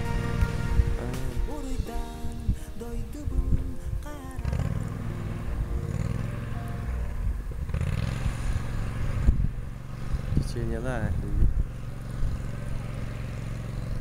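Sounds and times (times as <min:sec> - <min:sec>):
motorboat engine droning: 0:04.4 - 0:14.0.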